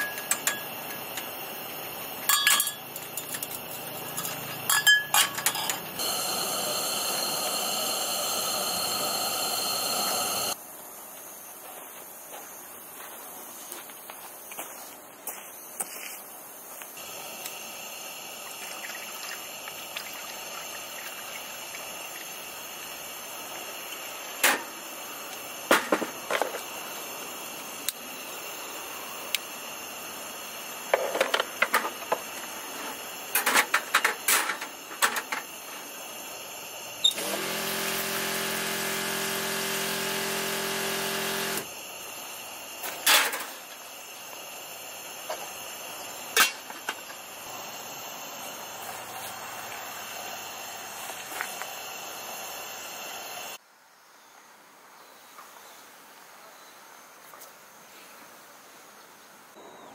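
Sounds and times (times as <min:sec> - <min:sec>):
butane torch hissing: 0:00.0 - 0:02.3, 0:05.4 - 0:10.6, 0:16.9 - 0:53.6.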